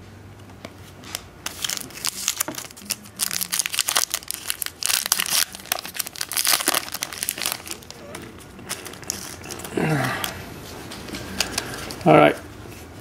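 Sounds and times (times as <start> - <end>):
foil wrapper crinkling and tearing: 1.4 - 9.7.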